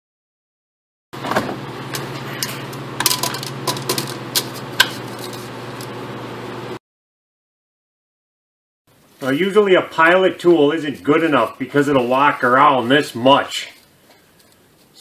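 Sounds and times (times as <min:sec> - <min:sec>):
steady low hum: 0:01.2 - 0:06.8.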